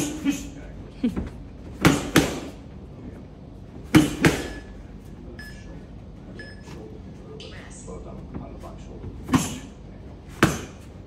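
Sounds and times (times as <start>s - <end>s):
punches hitting focus mitts: 1.7s - 2.6s, 3.8s - 4.6s, 10.3s - 10.9s.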